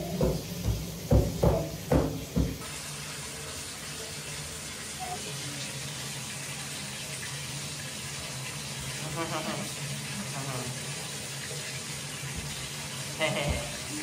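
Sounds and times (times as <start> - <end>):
water running: 0.0 - 14.0.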